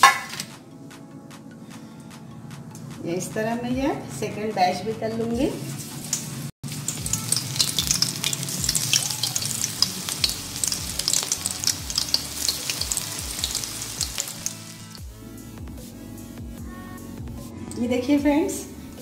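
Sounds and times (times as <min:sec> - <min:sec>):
patties deep-frying in hot oil: 0:05.8 - 0:15.0.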